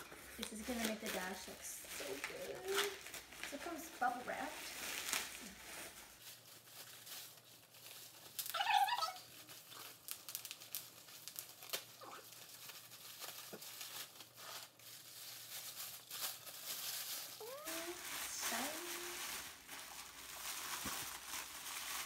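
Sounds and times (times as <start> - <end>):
plastic and bubble wrap crinkling: 0.0 - 22.0.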